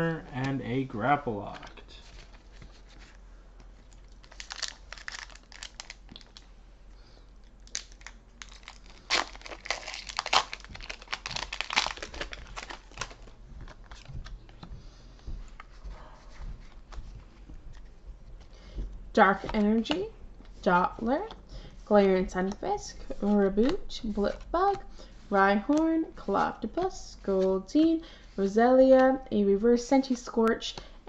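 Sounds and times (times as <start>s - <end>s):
cards rustling: 0.4s - 6.5s, 7.7s - 14.6s, 22.3s - 27.6s
foil wrapper crinkling and tearing: 3.9s - 6.5s, 7.6s - 14.0s.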